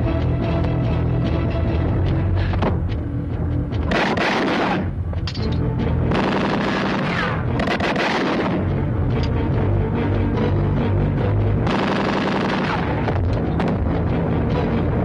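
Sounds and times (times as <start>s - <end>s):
background film music: 0.0s - 15.0s
rapid gunfire bursts: 3.9s - 4.9s, 6.1s - 8.6s, 11.7s - 13.1s.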